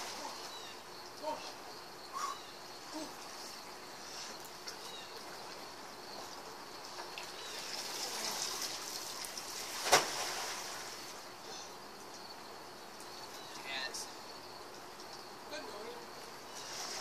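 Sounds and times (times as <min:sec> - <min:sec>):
pool water sloshing and splashing: 0:03.2 - 0:11.4, 0:16.6 - 0:17.0
pool float slapping water: 0:04.6 - 0:11.3.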